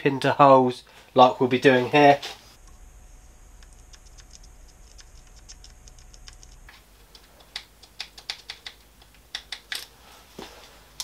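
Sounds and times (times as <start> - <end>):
faint fast ticking: 2.6 - 9.5.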